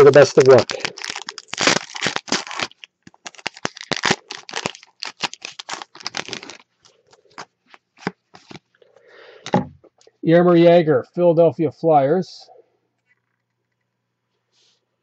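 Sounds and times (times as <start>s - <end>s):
foil wrapper crinkling: 0.0s - 8.7s.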